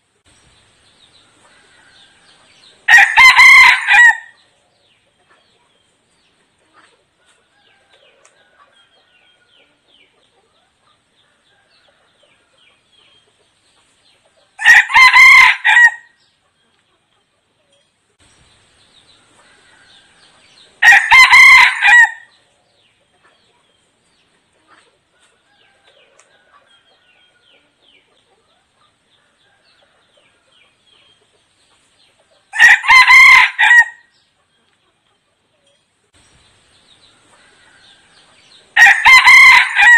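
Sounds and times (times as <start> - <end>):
rooster crowing: 1.5 - 4.4, 14.6 - 16.1, 19.4 - 22.3, 32.5 - 34.1, 38.8 - 39.9.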